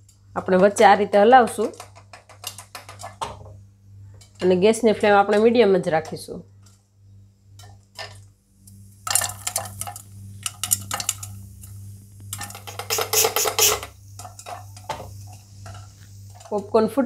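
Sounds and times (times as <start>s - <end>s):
popcorn popping in metal pot: 0.0s - 3.6s, 7.5s - 17.0s.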